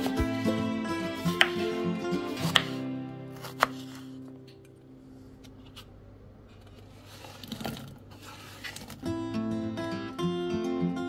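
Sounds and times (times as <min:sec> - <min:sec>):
guitar music: 0:00.0 - 0:05.4, 0:09.0 - 0:11.0
knife chopping on cutting board: 0:01.2 - 0:01.7, 0:02.3 - 0:02.8, 0:03.4 - 0:04.0.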